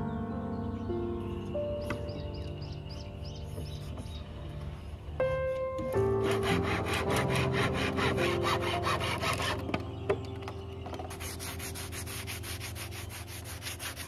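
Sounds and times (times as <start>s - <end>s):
handsaw cutting a branch: 6.2s - 9.8s, 11.1s - 14.0s.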